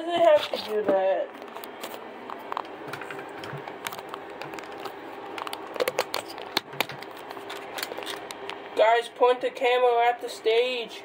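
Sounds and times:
phone handling clicks and rustles: 0:01.3 - 0:08.7.

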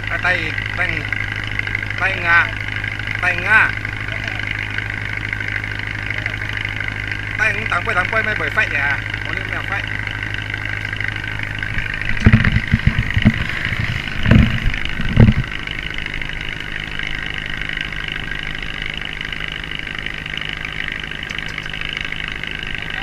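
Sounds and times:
boat motor hum and whine: 0:00.0 - 0:23.0
loud knocks and thumps: 0:11.7 - 0:15.6.

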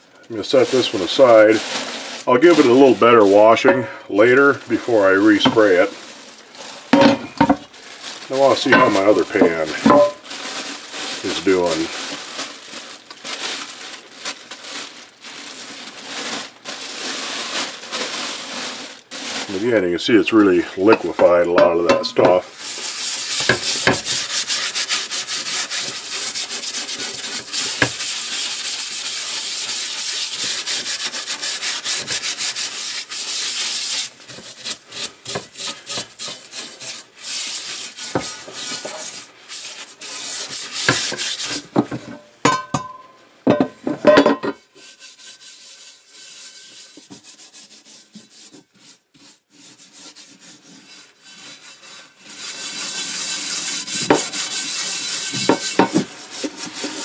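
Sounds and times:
scrubbing skillet: 0:00.5 - 0:13.6, 0:16.0 - 0:43.1, 0:43.8 - 0:57.0
quiet scraping: 0:08.3 - 0:10.2, 0:19.5 - 0:22.5.

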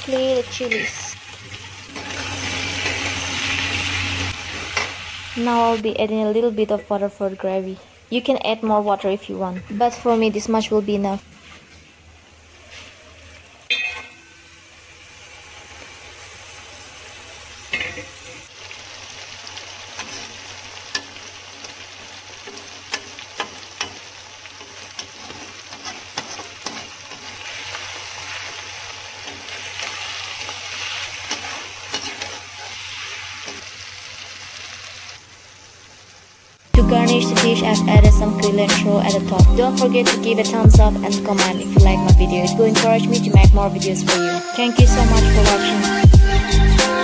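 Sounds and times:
food sizzling in a wok: 0:00.0 - 0:06.4, 0:12.2 - 0:41.7
metal spatula scraping pan: 0:24.6 - 0:28.5, 0:29.2 - 0:33.6.

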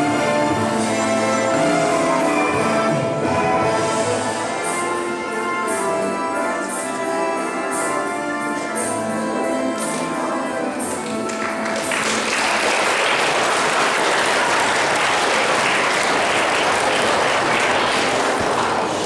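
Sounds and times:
music with held notes: 0:00.0 - 0:19.0
audience clapping: 0:10.8 - 0:19.0.

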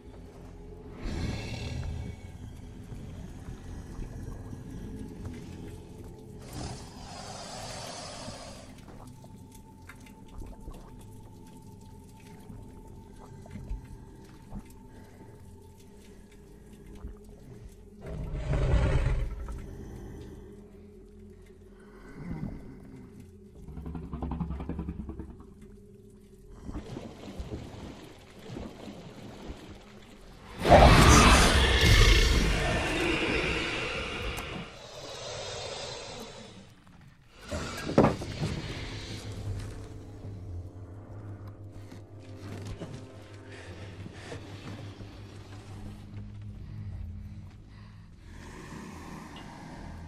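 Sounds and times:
low rumble: 0:21.8 - 0:35.6
hissing wash: 0:30.4 - 0:36.6
low rumbling growl: 0:30.4 - 0:40.9.

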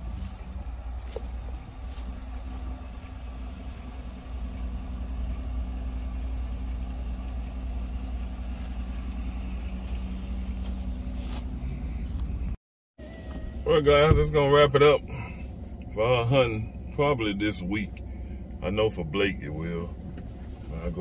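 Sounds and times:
truck engine idling: 0:00.0 - 0:21.0.

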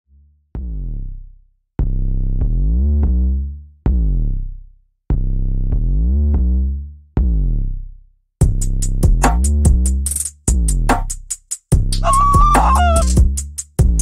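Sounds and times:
electronic music with bass and synth: 0:11.9 - 0:13.4.

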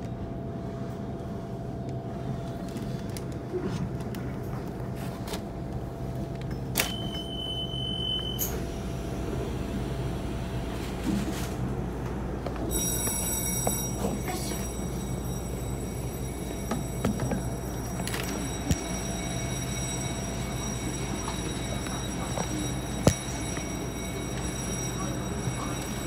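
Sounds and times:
train low hum: 0:00.0 - 0:26.0
steady high-pitched tones: 0:12.6 - 0:26.0.

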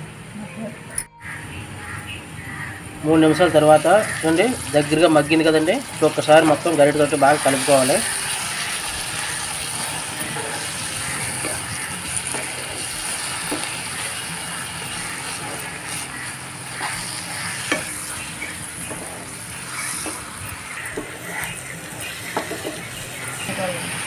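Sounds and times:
food sizzling in a pan: 0:01.2 - 0:24.0
spatula scraping a pan: 0:07.2 - 0:23.6.

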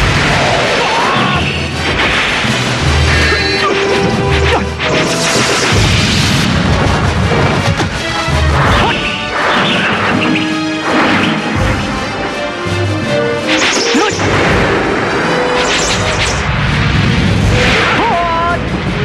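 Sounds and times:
heavy hits and crashes: 0:00.0 - 0:12.0
dramatic background music: 0:00.0 - 0:19.0
blade clashes: 0:13.4 - 0:16.5.

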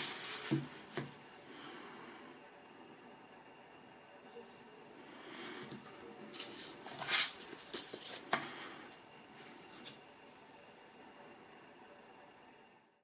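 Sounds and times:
paper sleeve rustling: 0:00.0 - 0:00.9, 0:06.3 - 0:08.2.

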